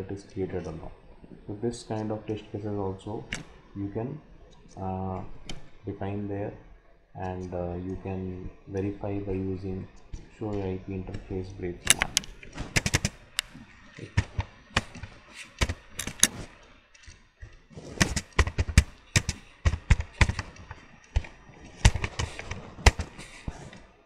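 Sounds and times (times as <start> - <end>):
keyboard typing: 10.5 - 16.4, 18.0 - 23.4.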